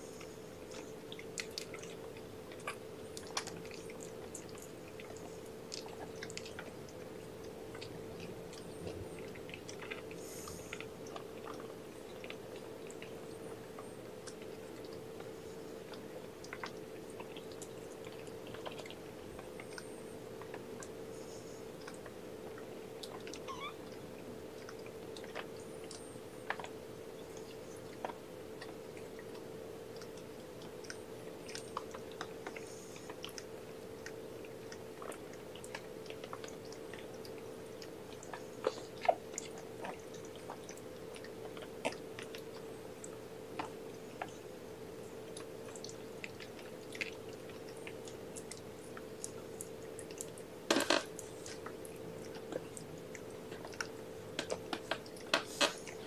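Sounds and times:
faint steady hum: 0.0s - 56.0s
kittens suckling mouth clicks: 0.2s - 44.4s.

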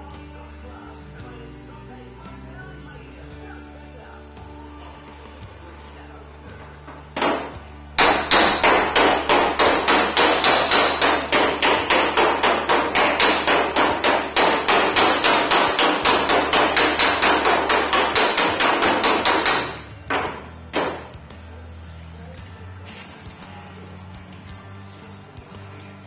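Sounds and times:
hammer striking sheet steel: 7.2s - 21.1s.

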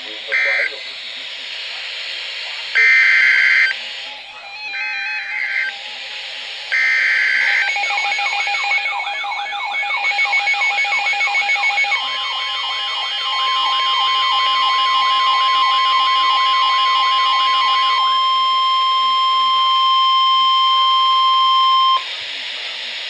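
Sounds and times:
buzzy digital data burst: 0.0s - 0.9s, 2.7s - 3.8s
rapid beeping: 0.0s - 1.1s, 2.8s - 3.8s, 6.7s - 22.0s
siren-like warble: 0.3s - 0.8s, 4.4s - 5.8s, 6.8s - 22.0s.

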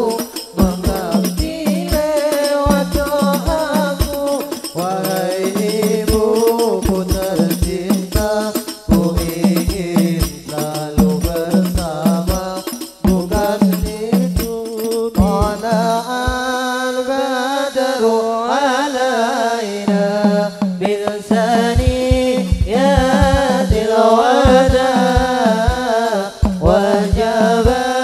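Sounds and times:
frame drums in quick rhythm: 0.0s - 16.7s, 19.9s - 28.0s
men chanting through microphones: 0.0s - 28.0s.

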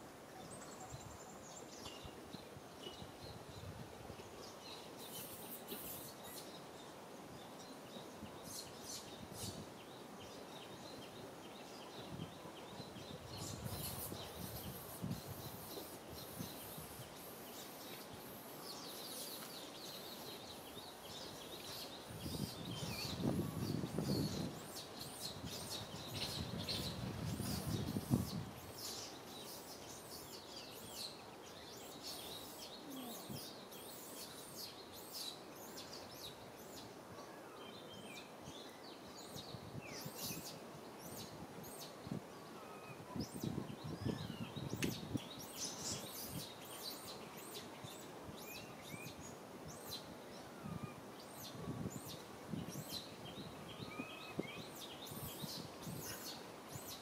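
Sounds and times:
outdoor background noise: 0.0s - 57.0s.

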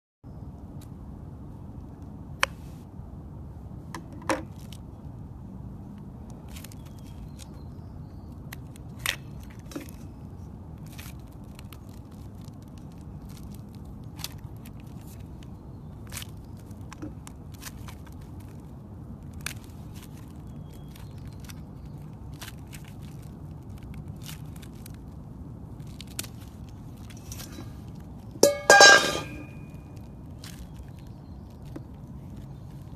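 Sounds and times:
steady low rumble: 0.3s - 32.9s
balloon skin crackling and snapping: 5.9s - 28.4s, 29.7s - 32.9s.

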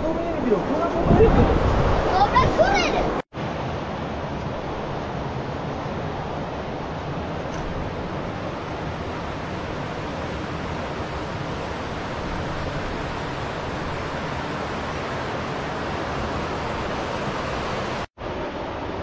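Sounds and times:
fast-flowing river rushing: 0.1s - 18.7s.

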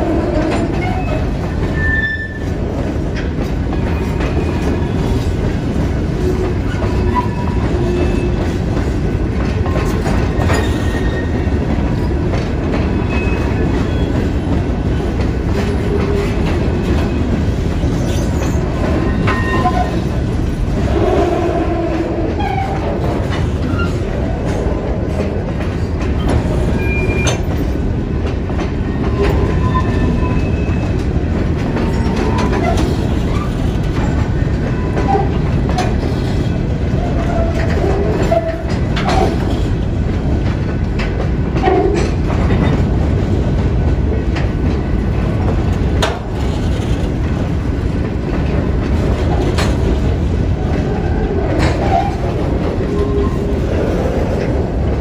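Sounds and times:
steel wheels rumbling on rails: 0.0s - 55.0s.

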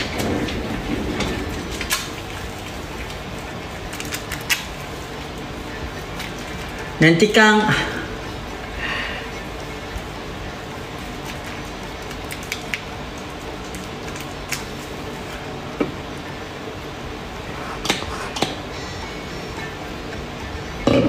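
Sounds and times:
hands rubbing foam: 17.4s - 18.7s.

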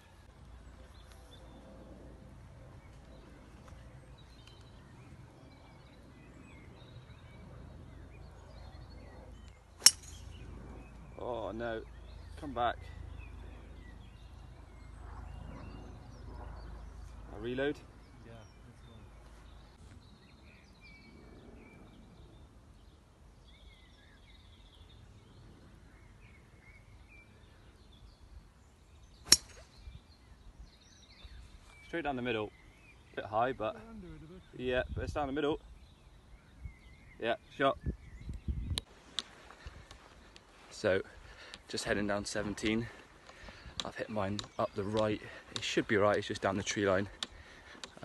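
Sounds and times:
faint birds chirping: 0.0s - 48.0s
golf driver striking ball: 9.8s - 10.4s, 29.3s - 29.6s.

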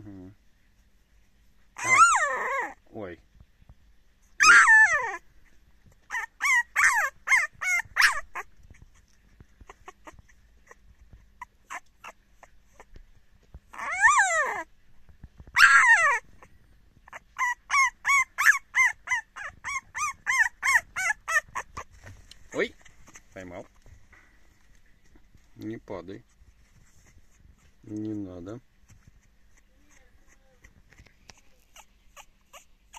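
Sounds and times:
puppy yapping: 1.8s - 2.8s, 4.4s - 5.2s, 6.0s - 12.9s, 13.7s - 14.7s, 15.5s - 21.9s, 29.5s - 32.9s
puppy drawn-out cries: 1.8s - 2.9s, 4.4s - 5.3s, 6.0s - 13.0s, 13.7s - 14.7s, 15.5s - 21.9s, 29.2s - 32.9s.

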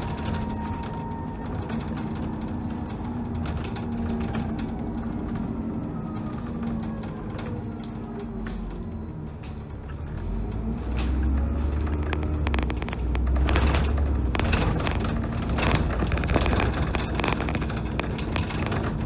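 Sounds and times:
bus diesel engine rumbling: 0.0s - 19.0s
bodywork rattling and knocking: 11.1s - 19.0s.

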